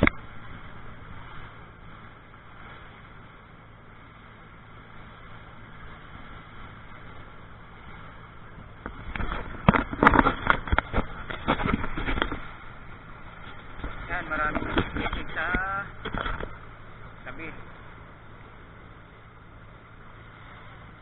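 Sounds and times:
boat engine droning: 0:00.0 - 0:21.0
rushing water: 0:00.0 - 0:21.0
wind: 0:00.0 - 0:21.0.

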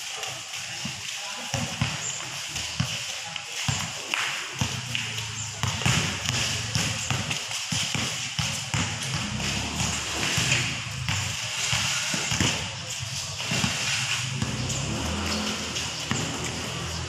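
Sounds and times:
basketball bouncing: 0:03.7 - 0:04.0, 0:04.6 - 0:17.0.

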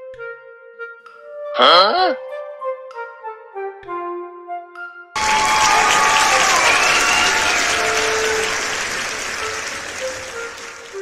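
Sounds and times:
crowd applause: 0:05.2 - 0:11.0.

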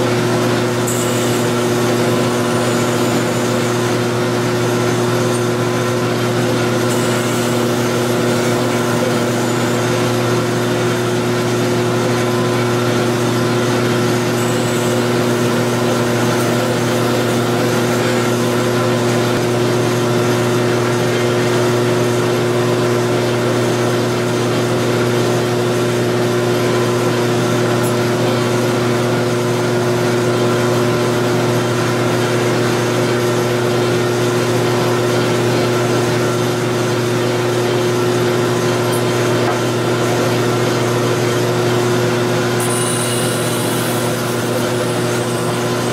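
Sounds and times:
belt grinder grinding steel: 0:00.1 - 0:19.4, 0:42.5 - 0:45.9.

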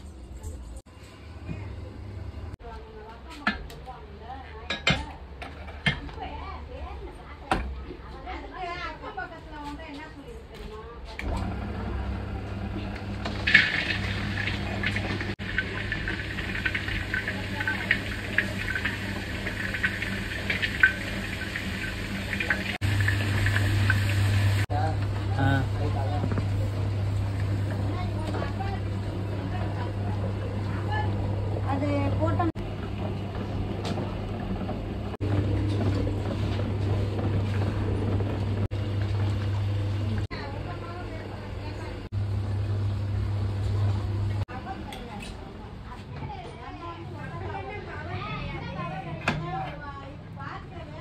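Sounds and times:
stirrer motor humming: 0:11.2 - 0:44.7.

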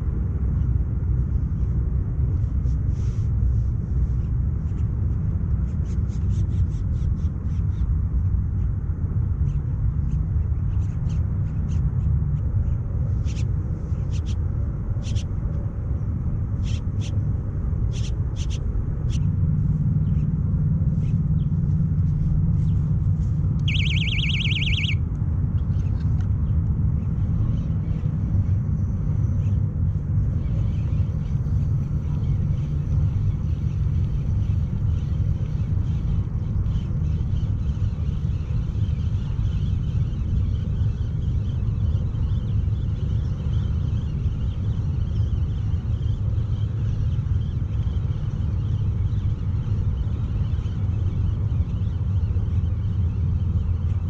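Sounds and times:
steady low rumble: 0:00.0 - 0:54.0
short high chirps and clicks: 0:23.6 - 0:25.0.

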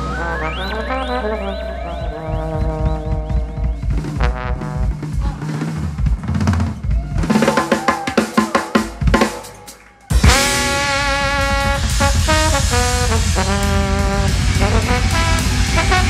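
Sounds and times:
trombone: 0:00.0 - 0:05.4, 0:10.2 - 0:16.0
jazz fusion band playing: 0:00.0 - 0:06.4, 0:10.1 - 0:16.0
snare and bass drum hits: 0:02.1 - 0:05.4, 0:07.4 - 0:16.0.

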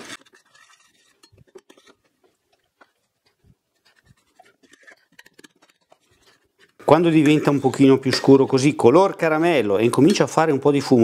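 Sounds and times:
metal spoon scraping saucepan: 0:00.0 - 0:08.6.

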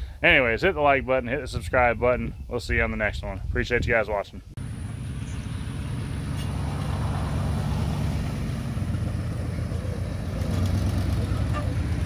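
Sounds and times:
pickup truck engine running: 0:04.6 - 0:12.0.

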